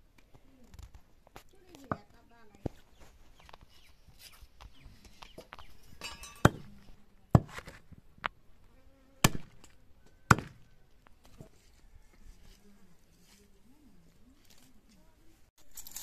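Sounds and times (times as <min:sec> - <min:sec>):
cleaver chopping on wooden block: 0:09.2 - 0:09.6, 0:10.3 - 0:10.6.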